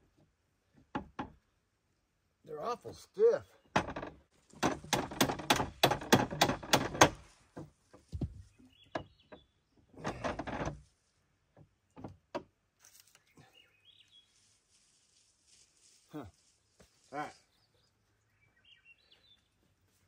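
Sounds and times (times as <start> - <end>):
sharp metal clicks and knocks: 3.7 - 7.7.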